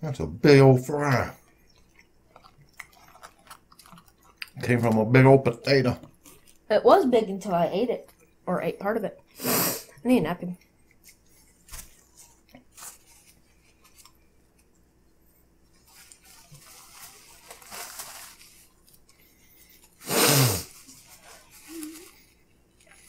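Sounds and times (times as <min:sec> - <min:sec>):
soft chewing: 0:01.0 - 0:05.1, 0:05.9 - 0:06.7, 0:08.0 - 0:08.5, 0:09.2 - 0:20.0, 0:20.7 - 0:23.0
paper rustling: 0:11.0 - 0:14.2, 0:15.8 - 0:19.2, 0:20.7 - 0:23.0
person spitting out food: 0:20.0 - 0:20.8.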